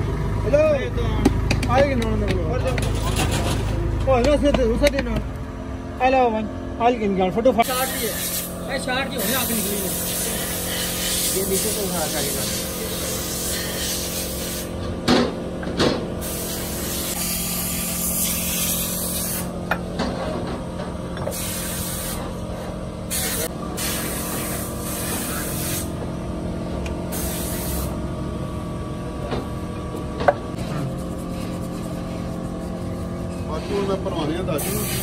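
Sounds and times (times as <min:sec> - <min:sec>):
steady machine hum: 0:00.0 - 0:35.0
hissing bursts: 0:07.7 - 0:08.6, 0:09.2 - 0:14.7, 0:16.2 - 0:19.5, 0:21.3 - 0:22.3, 0:23.1 - 0:25.9, 0:27.1 - 0:28.0, 0:34.6 - 0:35.0.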